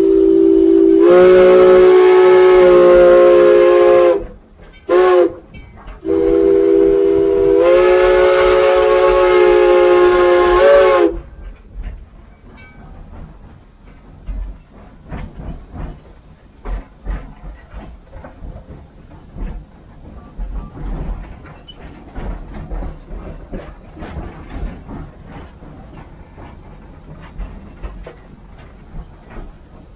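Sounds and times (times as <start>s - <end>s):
steam locomotive whistle blowing: 0.0s - 11.3s
knocks and clanks: 11.4s - 29.9s.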